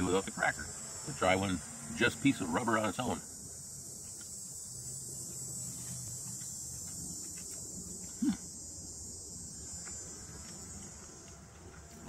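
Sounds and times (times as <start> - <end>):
insects chirring: 0.0 - 12.0
man humming: 8.1 - 8.5.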